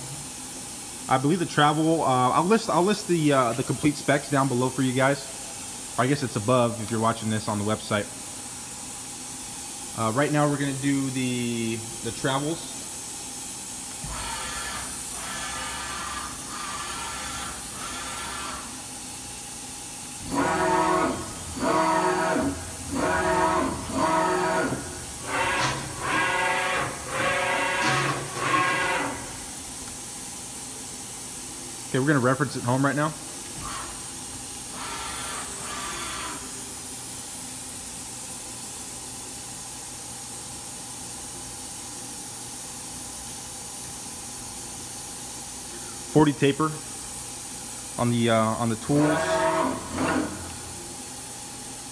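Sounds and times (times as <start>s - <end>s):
steady hiss: 0.0s - 14.1s
steady machine hiss: 0.0s - 51.9s
machine axis drive whine: 13.8s - 19.1s, 19.8s - 29.9s, 48.5s - 51.2s.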